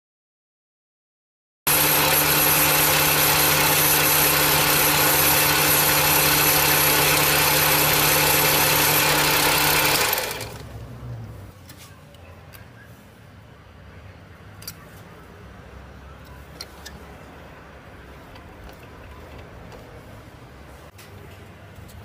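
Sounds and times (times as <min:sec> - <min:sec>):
lathe humming and whining: 0:01.7 - 0:10.7.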